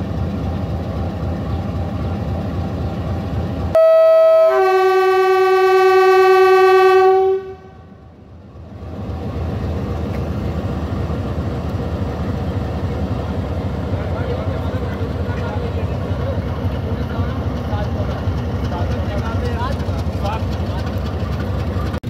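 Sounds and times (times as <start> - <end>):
train rumble: 0.0 - 22.0
locomotive air horn blast: 3.8 - 8.0.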